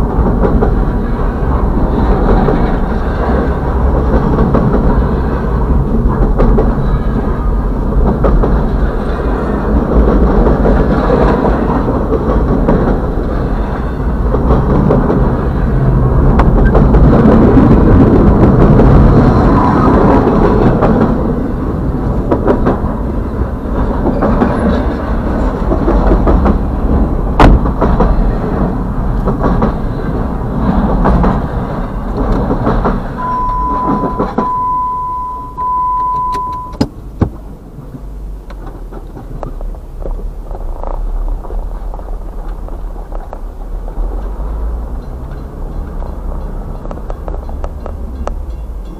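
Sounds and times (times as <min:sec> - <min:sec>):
freight train rolling past: 0:00.0 - 0:35.8, 0:37.0 - 0:48.9
steady high tone: 0:33.2 - 0:36.8.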